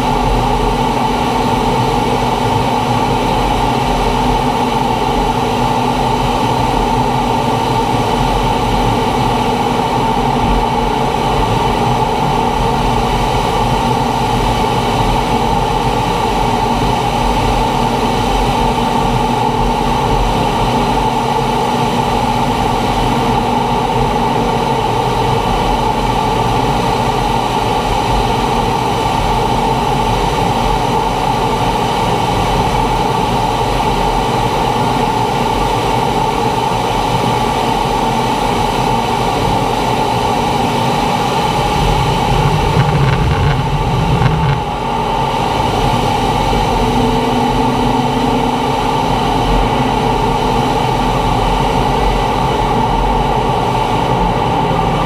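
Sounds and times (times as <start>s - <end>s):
jet engine and airflow in flight: 0.0s - 55.0s
deep rumble: 41.1s - 52.6s.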